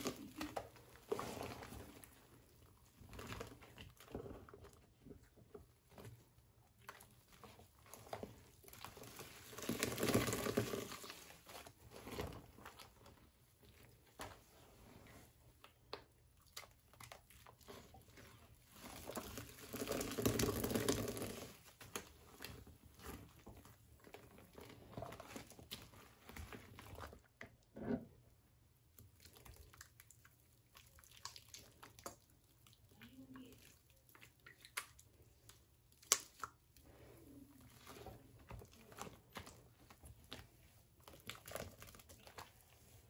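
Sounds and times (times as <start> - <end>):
rustling and crinkling: 0.0 - 28.2, 36.7 - 43.0.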